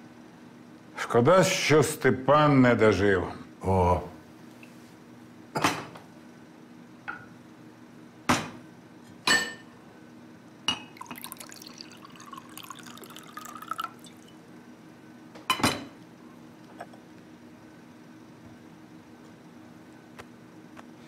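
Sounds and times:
liquid pouring into glass: 0:10.7 - 0:14.5.

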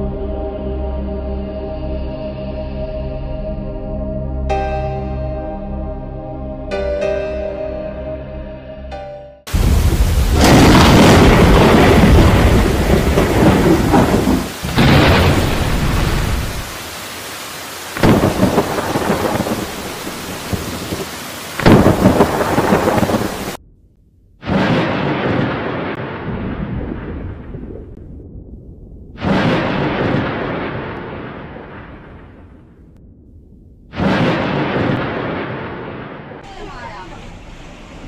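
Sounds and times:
thunder cracking and rumbling: 0:09.5 - 0:17.1, 0:17.8 - 0:36.5
heavy rain pouring: 0:09.5 - 0:23.6, 0:36.4 - 0:38.0.

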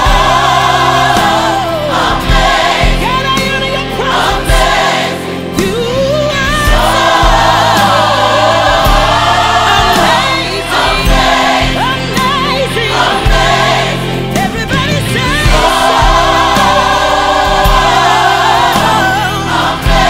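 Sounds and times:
deep bass notes: 0:00.0 - 0:20.0
gospel choir singing: 0:00.0 - 0:20.0.

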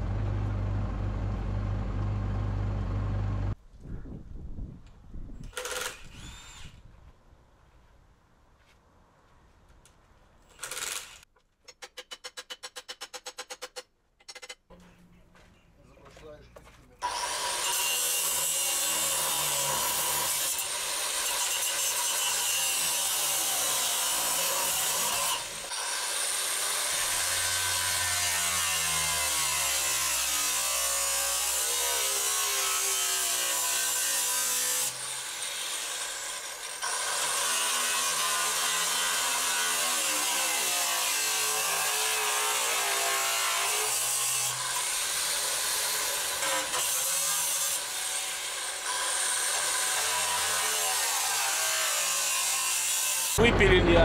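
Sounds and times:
angle grinder cutting steel: 0:17.0 - 0:53.4.

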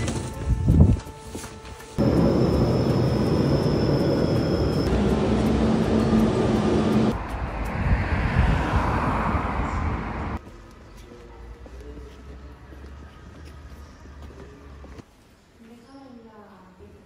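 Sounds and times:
train rumbling: 0:01.9 - 0:10.4
high train squeal: 0:02.0 - 0:07.2.

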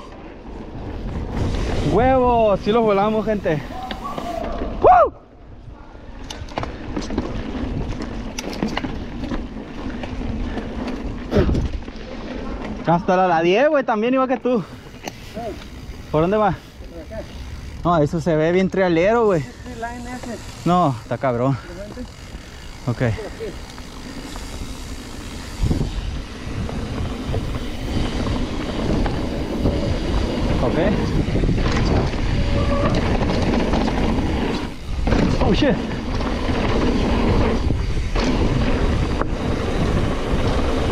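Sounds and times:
wind over microphone: 0:00.0 - 0:09.3, 0:09.9 - 0:12.8, 0:24.4 - 0:40.9
bike tyres rumbling on dirt: 0:00.0 - 0:40.9.

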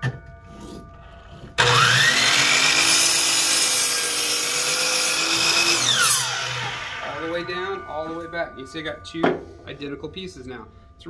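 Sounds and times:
saw cutting wood: 0:01.6 - 0:07.6
miter saw whining: 0:01.6 - 0:07.9.

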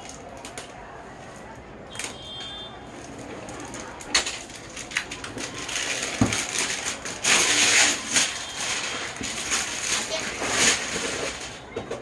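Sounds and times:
plastic wrap tearing: 0:00.0 - 0:00.8, 0:02.9 - 0:11.6
plastic wrap crinkling: 0:00.0 - 0:11.8.

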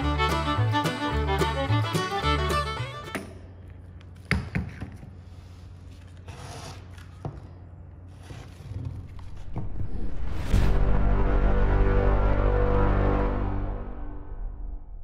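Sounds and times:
background music: 0:00.0 - 0:03.4, 0:10.1 - 0:15.0.

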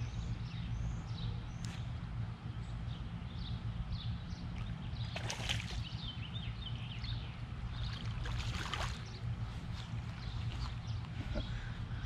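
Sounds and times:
fish splashing in water: 0:04.6 - 0:05.9, 0:07.8 - 0:09.2.

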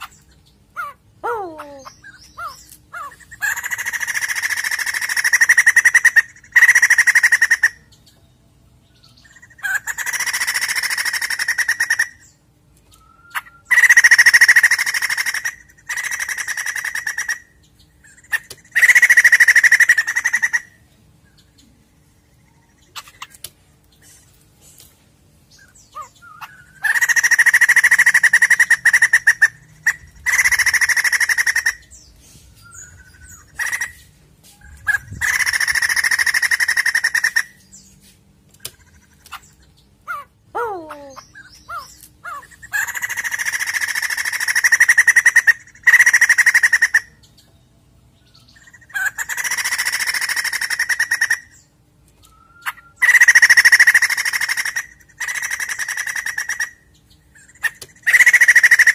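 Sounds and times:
bird rattling calls: 0:02.2 - 0:07.8, 0:18.1 - 0:20.7, 0:26.0 - 0:32.0, 0:32.8 - 0:37.9, 0:41.7 - 0:47.0, 0:48.7 - 0:51.5, 0:52.6 - 0:56.8, 0:57.4 - 0:58.9.

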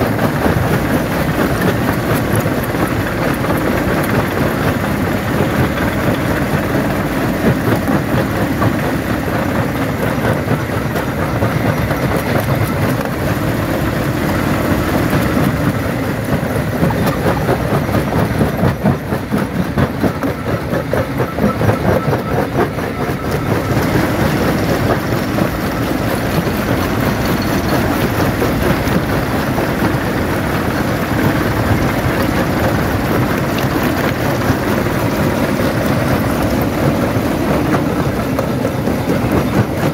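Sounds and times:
heavy machine din: 0:00.0 - 0:39.9.

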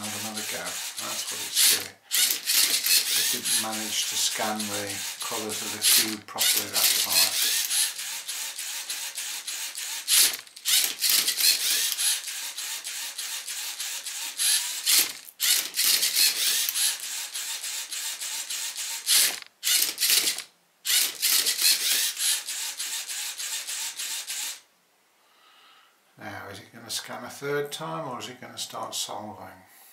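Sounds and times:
robot servo motors whirring: 0:00.0 - 0:24.6
sharp clicks: 0:00.3 - 0:13.5, 0:14.3 - 0:17.1, 0:17.8 - 0:22.4.

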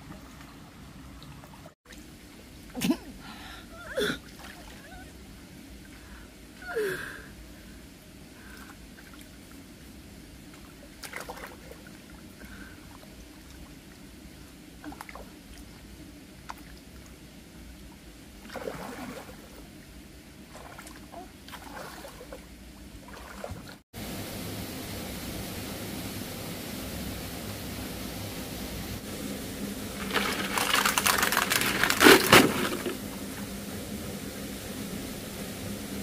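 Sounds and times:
water sloshing and splashing: 0:00.0 - 0:06.6, 0:08.4 - 0:23.8, 0:29.8 - 0:33.5
steady low background noise: 0:00.0 - 0:36.0.

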